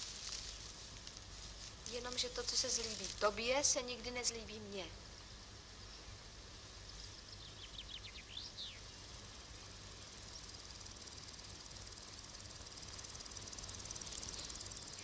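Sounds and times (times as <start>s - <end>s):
insects chirping: 0.0s - 15.0s
steady low hum: 0.0s - 15.0s.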